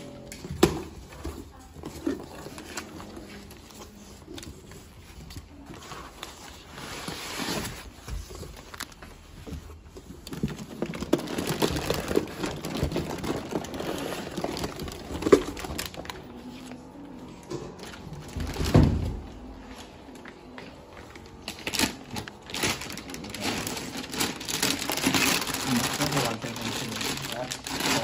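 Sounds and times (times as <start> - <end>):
paper and foam rustling: 0.0 - 17.2, 17.8 - 28.0
foil bag crinkling: 10.2 - 16.4, 21.3 - 28.0.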